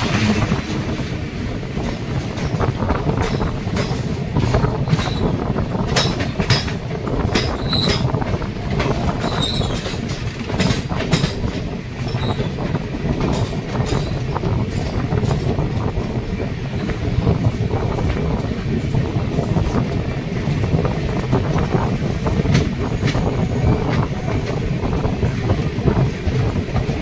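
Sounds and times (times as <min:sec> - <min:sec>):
train rumble on rails: 0:00.0 - 0:27.0
wheel clatter over track: 0:00.0 - 0:27.0
high wheel squeals: 0:07.5 - 0:08.1, 0:09.2 - 0:09.9.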